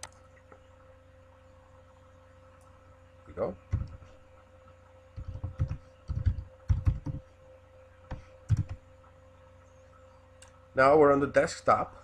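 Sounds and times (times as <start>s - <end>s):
typing on computer keyboard: 5.2s - 7.2s, 8.5s - 8.8s.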